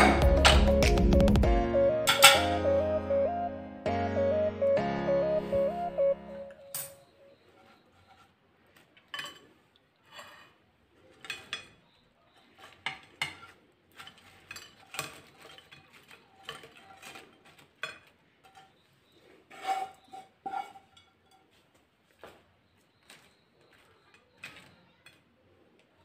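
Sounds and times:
plate ringing: 2.0 - 3.0, 6.5 - 7.1.

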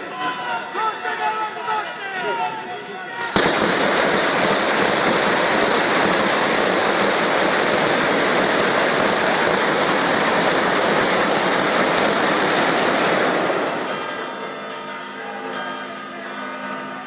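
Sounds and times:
crowd applauding: 3.3 - 14.1.

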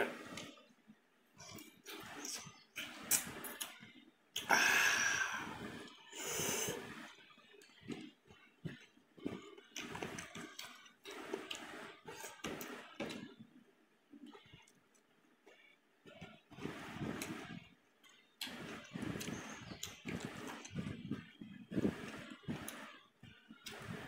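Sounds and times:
breathy slurps: 4.4 - 7.2.

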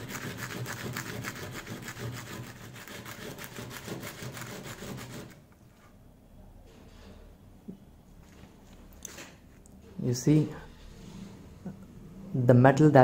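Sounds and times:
metal tip rasping on sandpaper: 0.0 - 5.4.

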